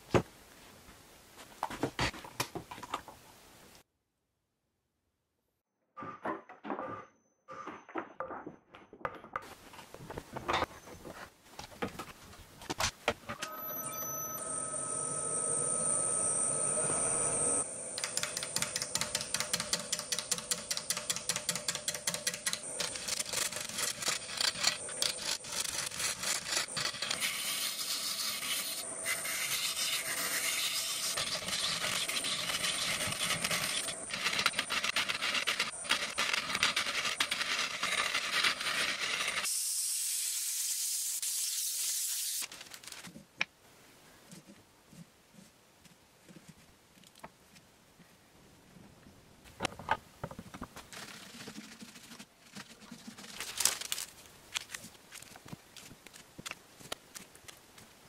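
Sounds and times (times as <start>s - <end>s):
wood lathe tool scraping wood: 22.8s - 39.5s.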